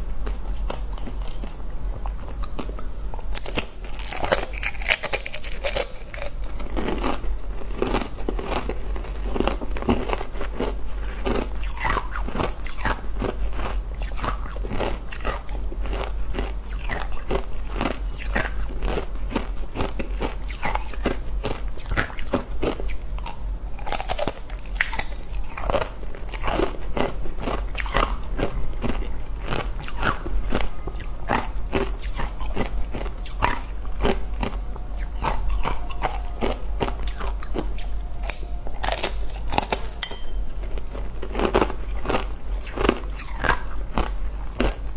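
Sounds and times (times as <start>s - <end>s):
low steady hum: 0.0s - 44.9s
ice crunching and chewing: 0.2s - 44.9s.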